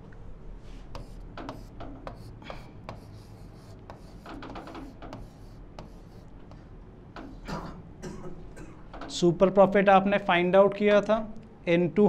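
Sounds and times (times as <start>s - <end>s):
stylus tapping and scratching: 0.9s - 7.4s.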